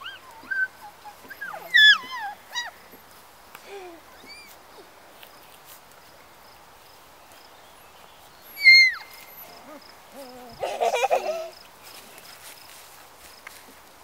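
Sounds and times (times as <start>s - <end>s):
puppies squealing: 0.0s - 3.0s, 4.1s - 4.6s, 8.6s - 10.9s
puppy yelping: 0.0s - 3.0s, 8.6s - 10.6s.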